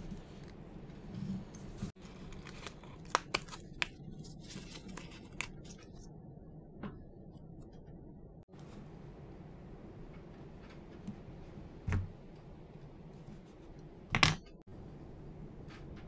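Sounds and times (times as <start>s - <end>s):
paper crinkling: 1.9s - 6.0s.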